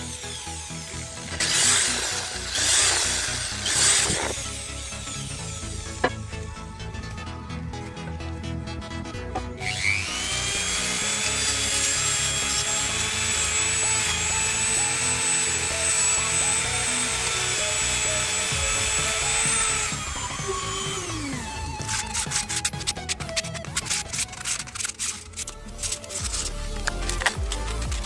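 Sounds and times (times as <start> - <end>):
rotary tool high whine: 0.0 - 27.8
sandpaper rubbing wood: 21.6 - 28.0.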